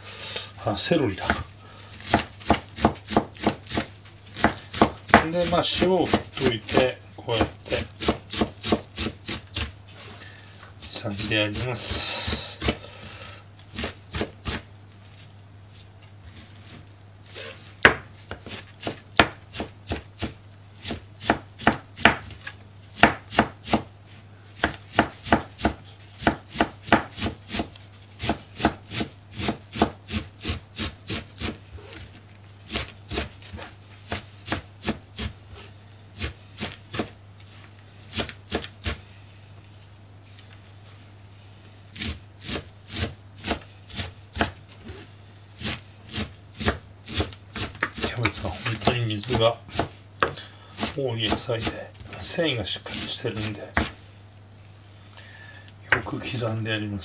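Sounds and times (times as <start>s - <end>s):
knife chopping on plastic board: 2.0s - 9.7s, 17.8s - 23.9s, 24.6s - 31.6s, 32.7s - 35.3s, 36.2s - 37.2s, 42.0s - 44.6s, 45.6s - 52.2s, 52.9s - 54.0s.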